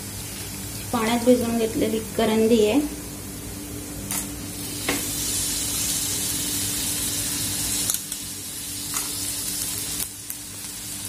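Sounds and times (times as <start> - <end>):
sizzling hiss in hot oil: 4.1 - 11.0.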